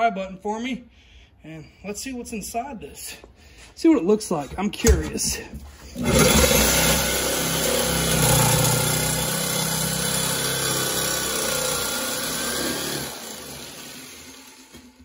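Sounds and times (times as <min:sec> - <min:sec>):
jigsaw cutting metal: 0:05.9 - 0:15.0.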